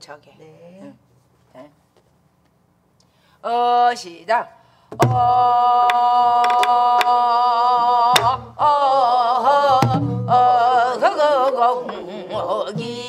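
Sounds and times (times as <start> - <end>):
woman singing folk song: 3.4 - 13.0.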